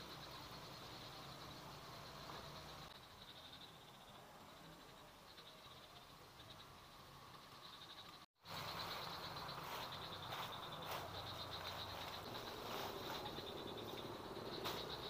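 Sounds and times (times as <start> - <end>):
insects chirring: 0.0 - 15.0
vegetation rustling: 8.5 - 15.0.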